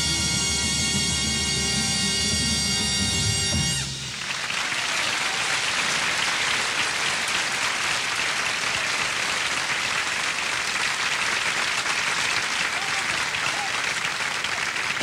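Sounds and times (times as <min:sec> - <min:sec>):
audience applauding: 0:03.8 - 0:15.0.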